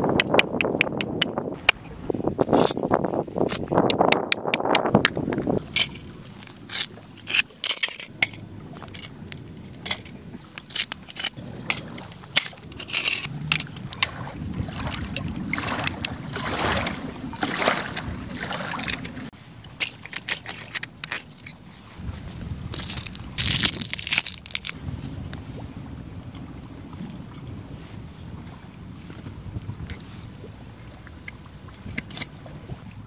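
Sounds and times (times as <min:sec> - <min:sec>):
gravel scraping and crunching: 0:02.4 - 0:03.8, 0:05.5 - 0:16.7, 0:19.8 - 0:25.2.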